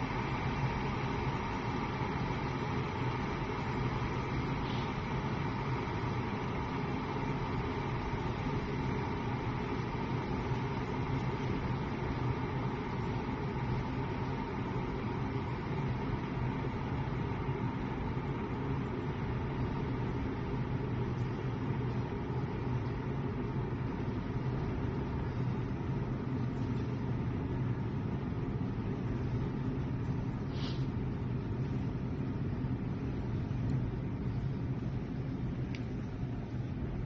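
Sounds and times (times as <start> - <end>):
kettle water rumbling: 0.0 - 37.0.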